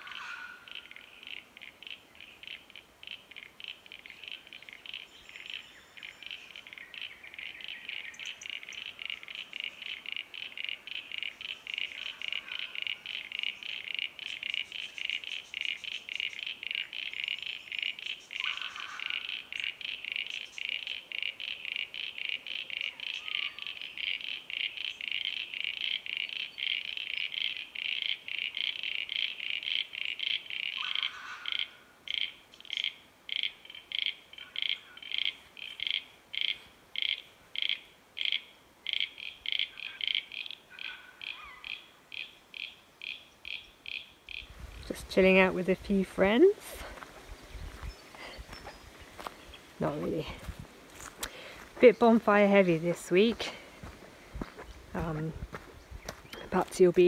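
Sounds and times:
frogs calling: 0:00.0 - 0:57.0.

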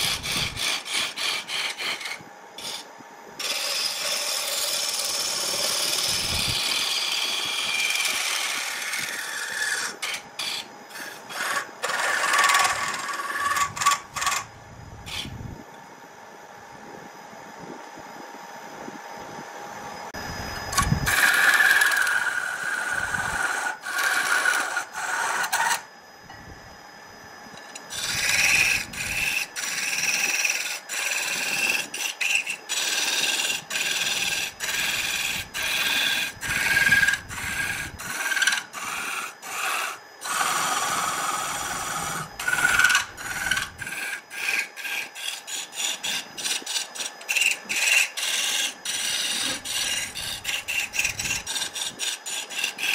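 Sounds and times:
tool scraping wood on lathe: 0:00.0 - 0:14.5, 0:20.8 - 0:25.8, 0:27.8 - 0:52.9
lathe whine: 0:00.0 - 0:52.9.

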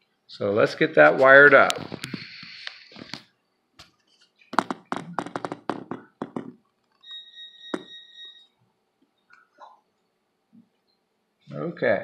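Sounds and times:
clicks and knocks on desk: 0:04.5 - 0:07.0.

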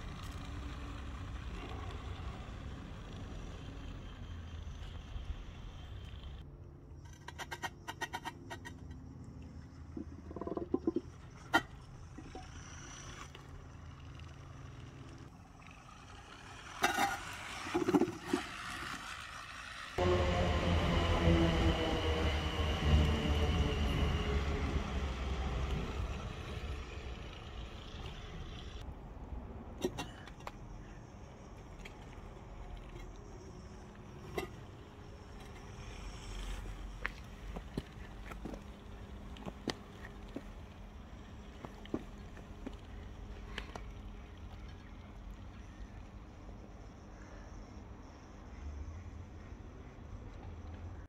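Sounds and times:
electric drive humming: 0:18.6 - 0:28.8.

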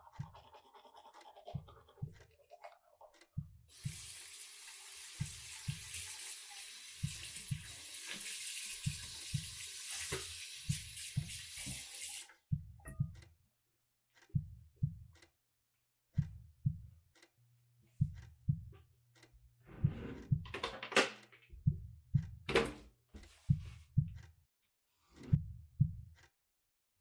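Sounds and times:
heartbeat thumps: 0:00.1 - 0:00.6, 0:01.5 - 0:02.2, 0:03.4 - 0:04.1, 0:05.2 - 0:06.0, 0:07.0 - 0:07.8, 0:08.8 - 0:11.8, 0:12.5 - 0:13.2, 0:14.3 - 0:15.2, 0:16.2 - 0:17.0, 0:17.9 - 0:18.8, 0:19.7 - 0:20.6, 0:21.5 - 0:22.6, 0:23.4 - 0:24.3, 0:25.2 - 0:26.2.

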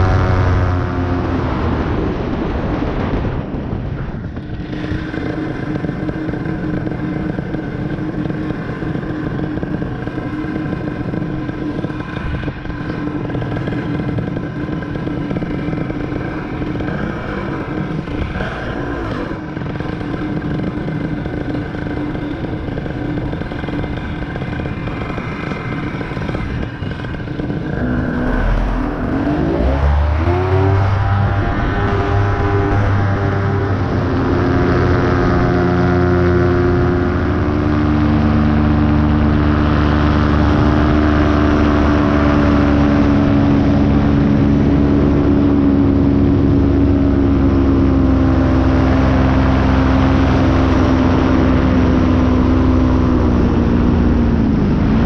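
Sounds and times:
wind rushing past microphone: 0:00.0 - 0:06.9, 0:24.8 - 0:52.4
paramotor engine running: 0:00.0 - 0:55.0.

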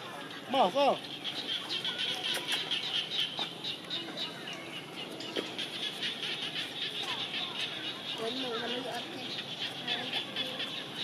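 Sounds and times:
birds chirping: 0:00.0 - 0:11.0
outdoor background noise: 0:00.0 - 0:11.0.

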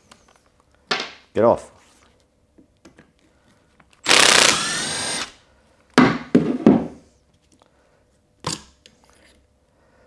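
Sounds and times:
cordless driver whining: 0:04.0 - 0:05.4.

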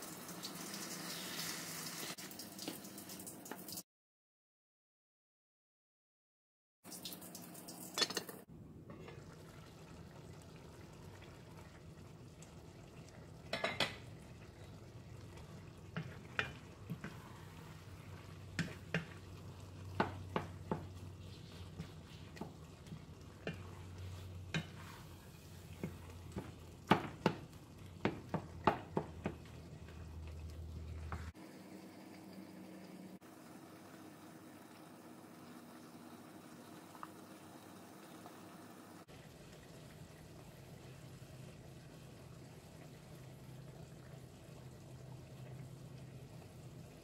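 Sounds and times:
low sizzle: 0:00.0 - 0:03.8, 0:06.9 - 0:47.0
wooden spoon stirring in skillet: 0:08.8 - 0:31.4
spoon knocking against pan: 0:19.9 - 0:21.0, 0:25.8 - 0:29.4.

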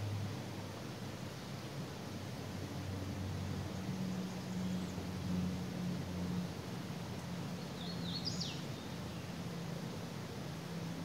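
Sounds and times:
songbird call: 0:07.8 - 0:09.3.

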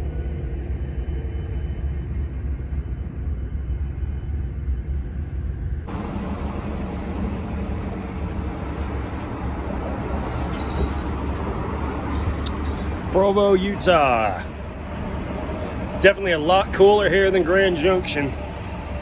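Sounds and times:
low rumble of vehicles: 0:00.0 - 0:19.0
road traffic noise: 0:05.9 - 0:19.0.

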